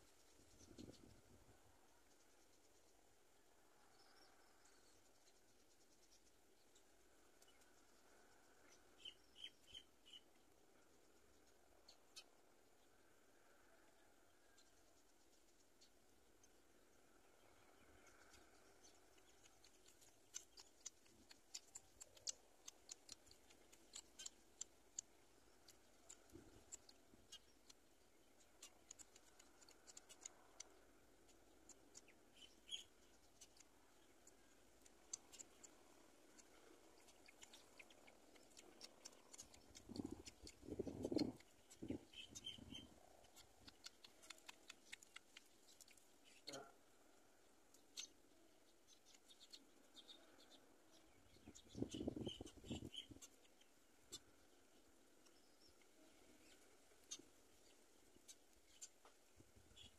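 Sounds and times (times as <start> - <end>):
faint sharp clicks and ticks: 0.0 - 59.9
faint high peeps: 35.1 - 46.8, 48.9 - 54.4.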